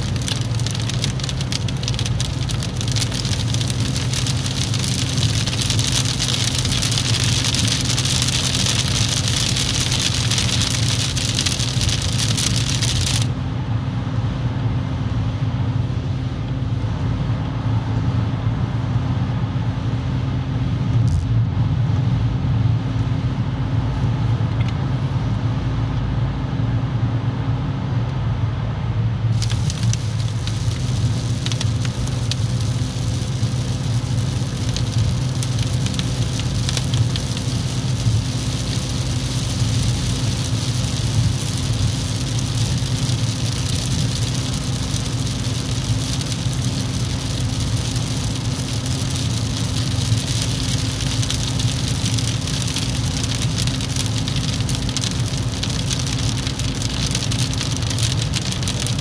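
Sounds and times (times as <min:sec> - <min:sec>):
hiss of wet tyres and rain: 0:00.0 - 0:13.3, 0:29.3 - 0:59.0
car engine drone and road noise: 0:00.0 - 0:59.0.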